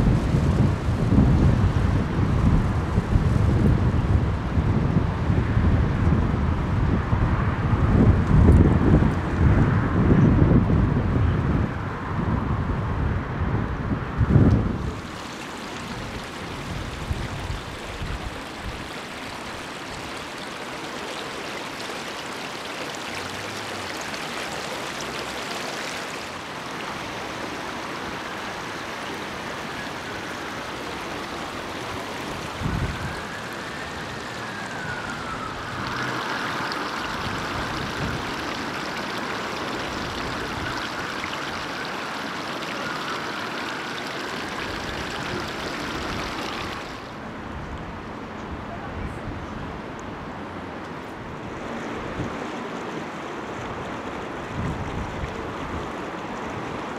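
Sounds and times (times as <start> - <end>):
floodwater rushing: 14.6 - 48.3, 50.4 - 56.9
siren wailing: 29.2 - 47.0.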